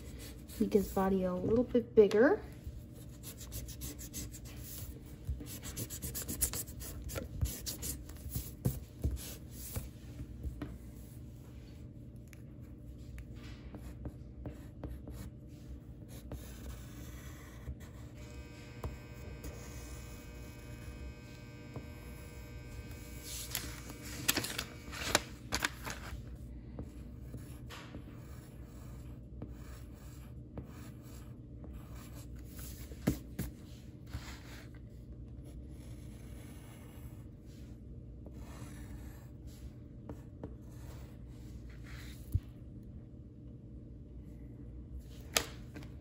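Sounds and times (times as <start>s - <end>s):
pencil strokes scratching paper: 0.0s - 1.6s, 2.6s - 11.9s, 12.6s - 18.2s, 25.8s - 42.4s
low steady hum: 0.0s - 46.0s.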